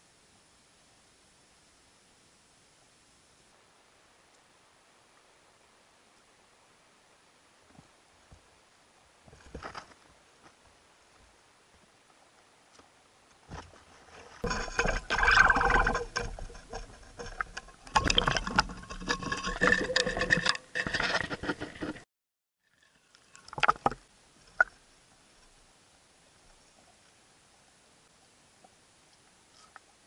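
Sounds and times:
rattling and crackling on camera housing: 13.5s - 22.0s.

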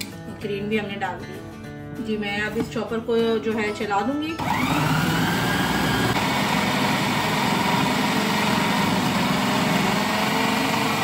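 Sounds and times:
food processor chopping: 4.4s - 11.0s.

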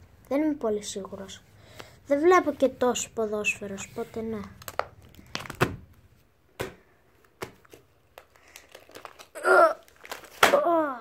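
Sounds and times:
taps on plastic album sleeves: 4.4s - 5.9s, 6.6s - 8.3s.

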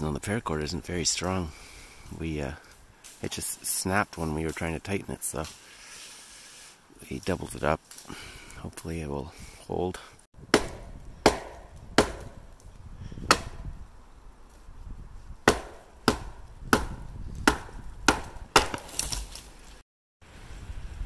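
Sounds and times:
hatchet chopping tree trunk: 10.5s - 12.5s, 13.2s - 13.6s, 15.4s - 19.4s.

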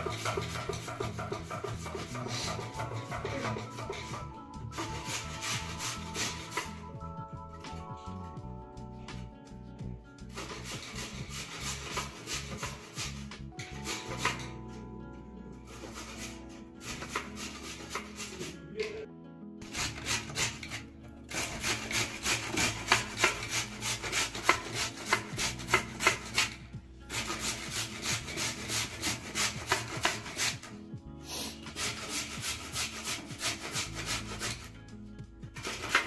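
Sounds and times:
carrot grated on metal grater: 0.0s - 6.8s, 10.3s - 13.2s, 15.7s - 18.6s, 19.6s - 30.7s, 31.7s - 34.7s, 35.6s - 36.0s.

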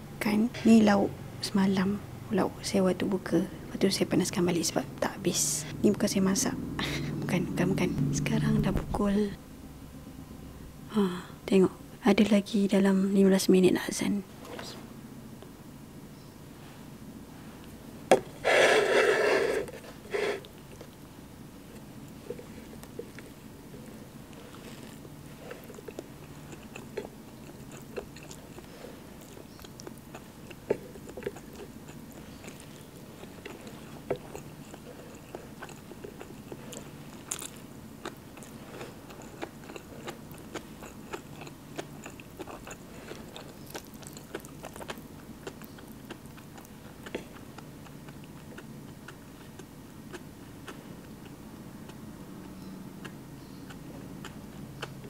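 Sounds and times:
person chewing: 18.2s - 21.1s, 21.7s - 55.0s
fingers scraping a plate: 18.4s - 20.5s.

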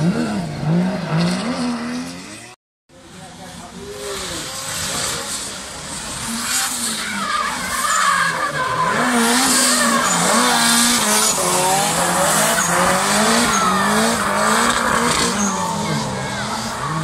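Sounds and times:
car engine at high revs: 0.0s - 17.0s
tyres squealing: 7.0s - 17.0s.

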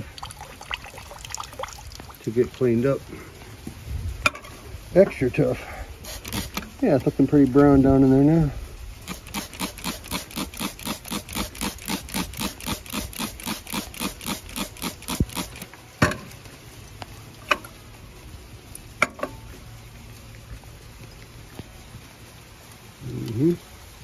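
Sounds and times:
spray bottle squirting: 6.0s - 6.8s, 9.0s - 15.7s.

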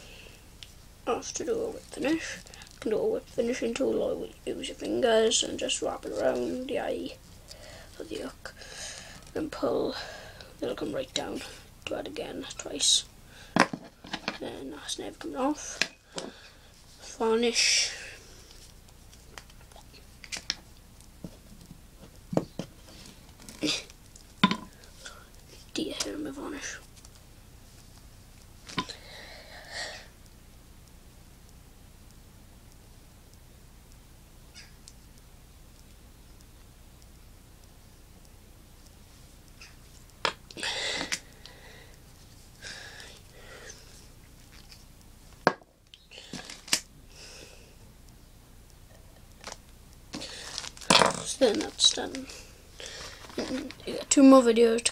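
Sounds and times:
faint fiddling sounds: 14.0s - 54.9s.

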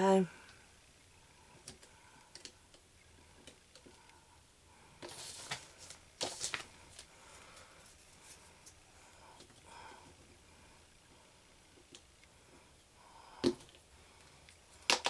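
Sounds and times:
rustle: 5.0s - 9.9s.

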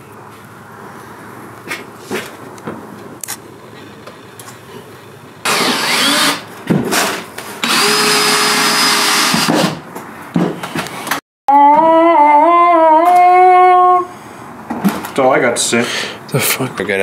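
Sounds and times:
cordless drill running: 5.5s - 6.5s, 7.6s - 9.5s.

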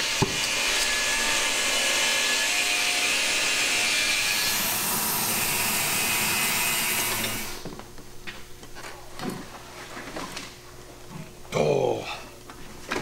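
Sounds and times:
gas torch flame hissing: 4.5s - 7.7s.

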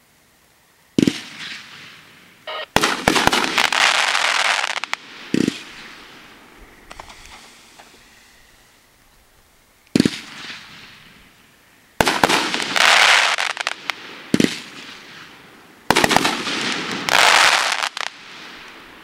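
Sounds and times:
firework shots reports: 1.0s - 8.0s, 9.9s - 11.2s, 12.0s - 18.6s
firework crackling: 1.0s - 19.0s.

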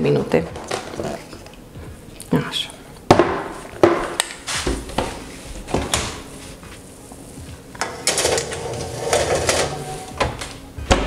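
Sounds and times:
oven door clatter: 7.8s - 11.0s.

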